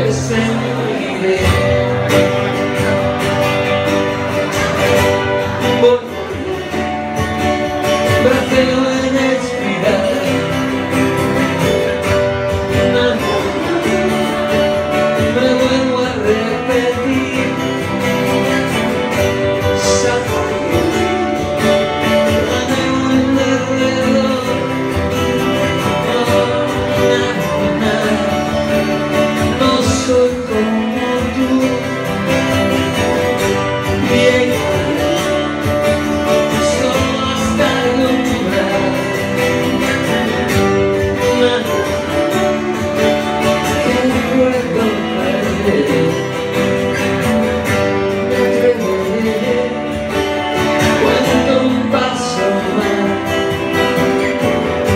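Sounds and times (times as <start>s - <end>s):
person singing: 0.0s - 46.9s, 47.8s - 54.9s
strummed guitars: 0.0s - 54.9s.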